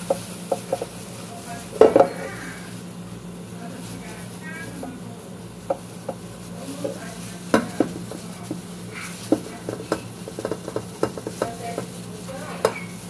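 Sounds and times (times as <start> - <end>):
metal pot clicks and knocks: 9.3 - 11.9.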